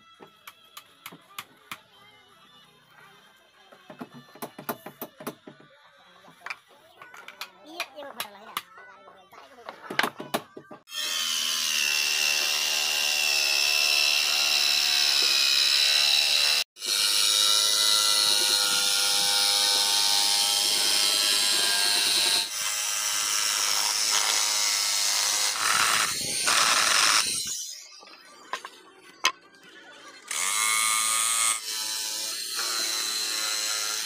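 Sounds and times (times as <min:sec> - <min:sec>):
jigsaw cutting wood: 0:10.9 - 0:27.5, 0:30.3 - 0:34.0.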